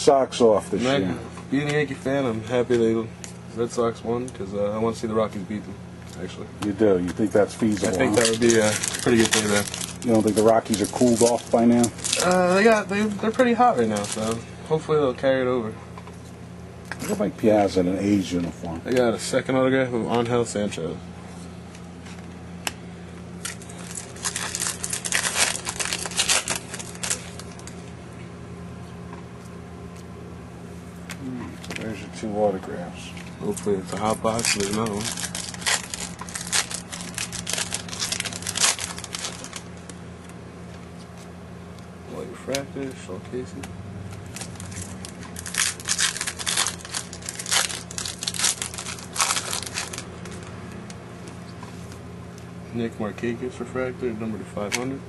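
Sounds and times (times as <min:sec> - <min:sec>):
foil wrapper crinkling: 0:07.0 - 0:14.4, 0:23.4 - 0:27.9, 0:33.6 - 0:40.0, 0:44.2 - 0:50.5.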